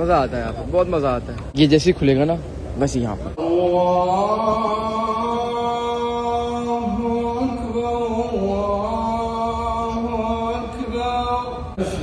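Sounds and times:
man chanting over loudspeakers: 3.4s - 12.0s.

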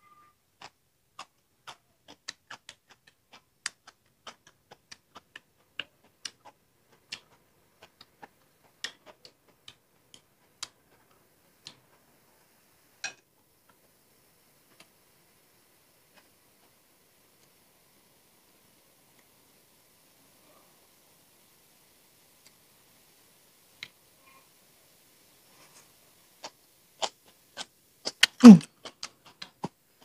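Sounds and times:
chewing crisp salad: 0.6s - 9.8s
mouth clicks: 28.1s - 29.5s.

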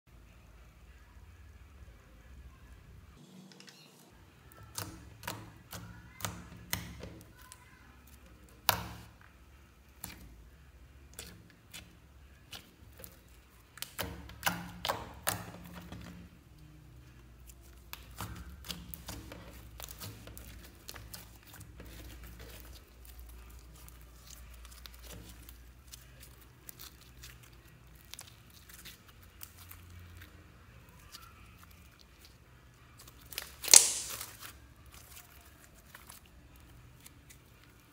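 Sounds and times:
slime squishing clicks and pops: 33.2s - 34.5s.

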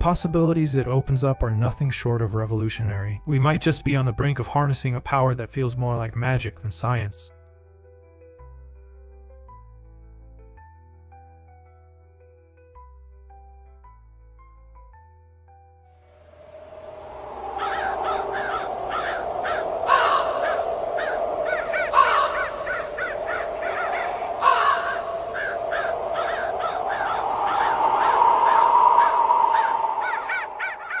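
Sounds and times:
steady drone: 16.2s - 31.0s
crows cawing: 16.5s - 31.0s.

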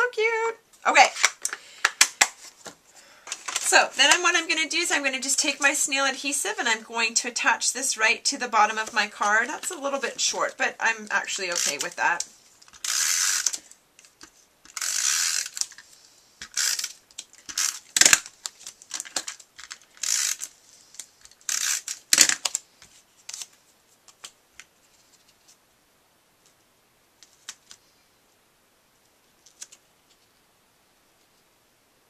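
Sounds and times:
paper strip ticks: 11.4s - 15.8s.

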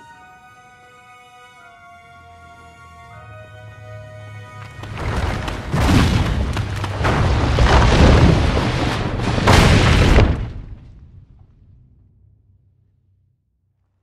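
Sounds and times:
sharp rock cracks: 4.8s - 11.5s
debris falling: 4.8s - 11.8s
rock collapsing with rumbling: 4.8s - 12.0s.

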